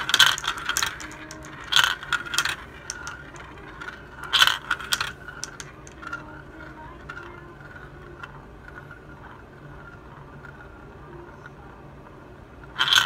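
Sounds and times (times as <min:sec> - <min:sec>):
glass marbles clacking: 0:00.0 - 0:09.4
marble rolling in plastic funnel: 0:00.0 - 0:13.0.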